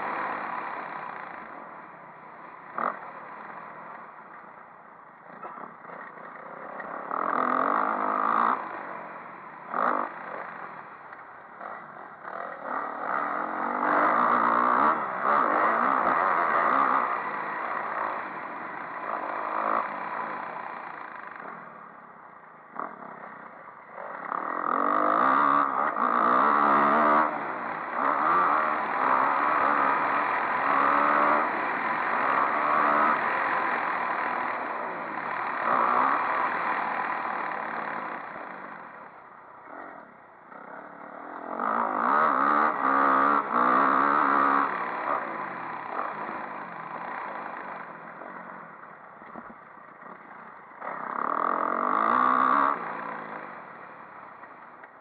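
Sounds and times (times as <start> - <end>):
motocross bike engine revving: 0.0 - 4.3, 5.2 - 21.9, 22.7 - 55.0.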